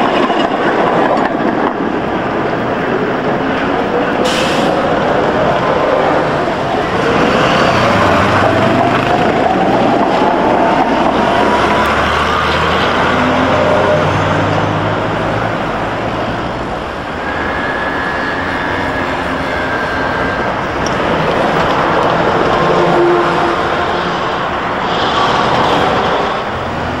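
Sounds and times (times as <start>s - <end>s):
rumble of wheels and road noise: 0.0s - 27.0s
tram motor whine: 0.0s - 27.0s
high whistle: 17.2s - 20.5s.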